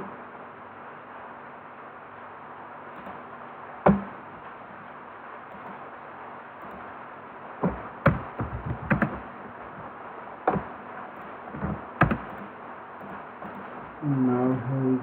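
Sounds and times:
faint background hum: 0.0s - 15.0s
keyboard and mouse clicks: 3.0s - 3.2s, 5.5s - 5.8s, 7.7s - 9.2s, 10.5s - 13.7s.

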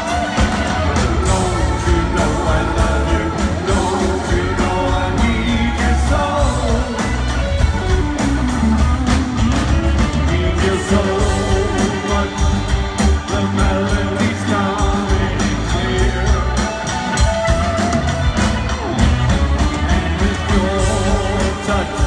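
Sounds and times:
male lead vocal: 0.0s - 7.9s, 10.0s - 17.3s, 19.6s - 22.0s
live rock band: 0.0s - 22.0s.

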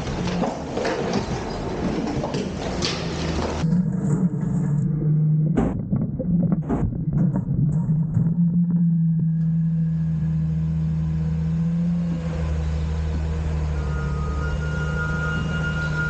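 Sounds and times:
truck engine and hydraulics running: 8.4s - 16.0s
thin high whine: 8.8s - 16.0s.

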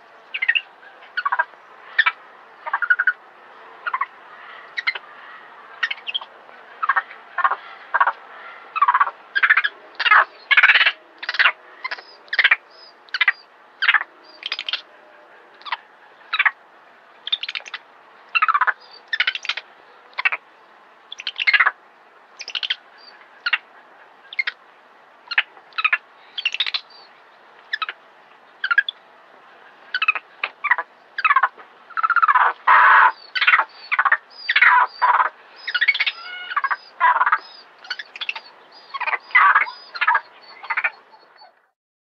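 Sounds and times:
monkey shrieking calls: 32.0s - 41.6s.

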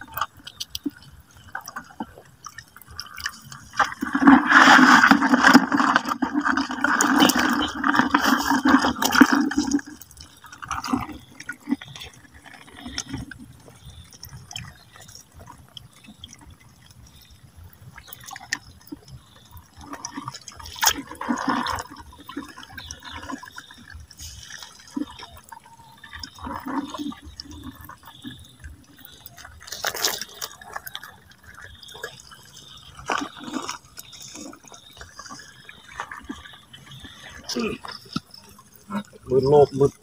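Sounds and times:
water splashing and sloshing: 0.0s - 40.0s.

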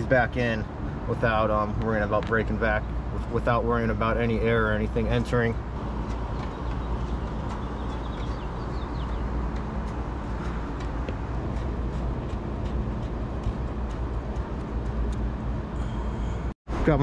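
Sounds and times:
low background rumble: 5.0s - 17.0s.

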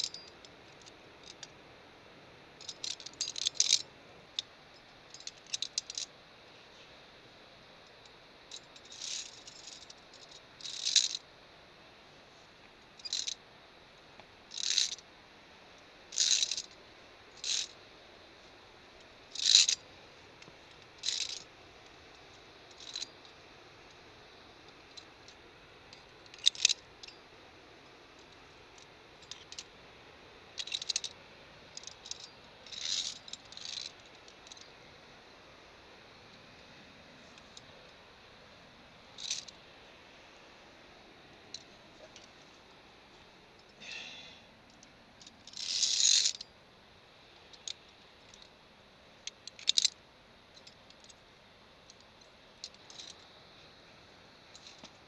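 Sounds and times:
carabiners clinking on steel cable: 0.0s - 1.6s, 2.6s - 6.1s, 8.0s - 11.2s, 13.0s - 13.4s, 14.5s - 15.0s, 16.1s - 17.9s, 19.1s - 19.8s, 20.4s - 24.0s, 24.6s - 29.8s, 30.6s - 34.8s, 39.1s - 39.6s, 43.6s - 46.5s, 47.4s - 48.6s, 49.2s - 51.2s, 51.9s - 53.4s, 54.5s - 55.0s.

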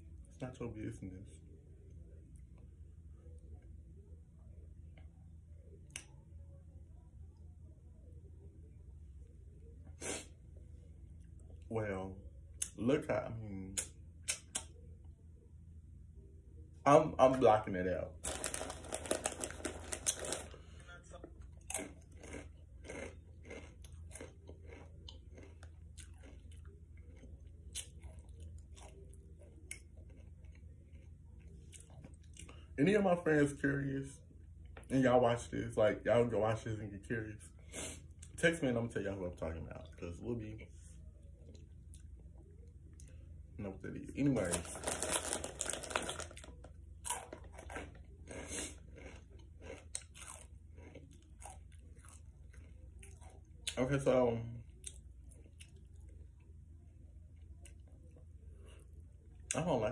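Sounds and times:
person chewing crunchy chips: 18.2s - 20.8s, 21.4s - 32.6s, 44.2s - 53.8s.

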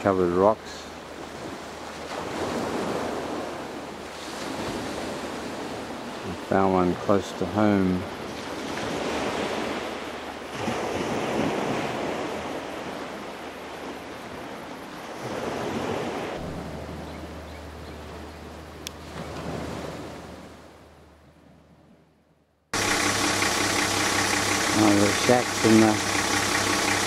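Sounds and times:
waves washing onto rocky shore: 0.0s - 16.4s, 22.8s - 27.0s.

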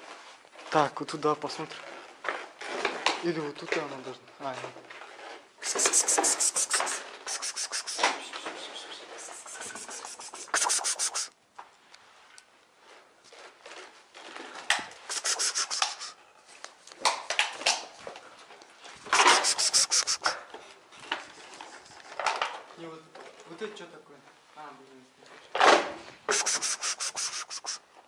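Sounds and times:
rapid scraping and rubbing: 5.2s - 11.3s, 15.1s - 16.2s, 19.0s - 20.4s, 26.3s - 27.8s.

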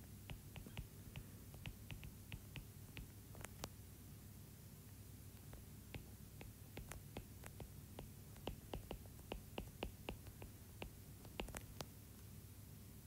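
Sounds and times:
low steady hum: 0.0s - 13.0s
stylus tapping on tablet screen: 0.2s - 3.7s, 5.4s - 11.9s.

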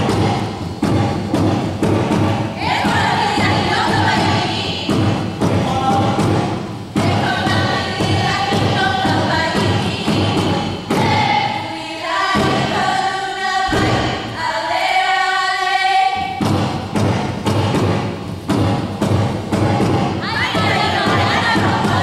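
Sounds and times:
thumping drum beat: 0.0s - 14.9s, 16.1s - 22.0s.

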